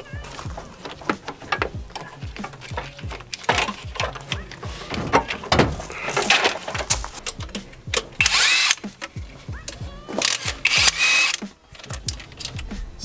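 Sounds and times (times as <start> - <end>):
hands clicking and rubbing hoses: 0.0 - 12.8
cordless drill whining: 8.2 - 8.8, 10.3 - 11.4.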